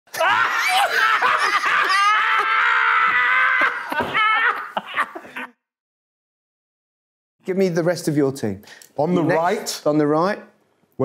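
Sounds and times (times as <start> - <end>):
men laughing loudly: 0.2 - 5.6.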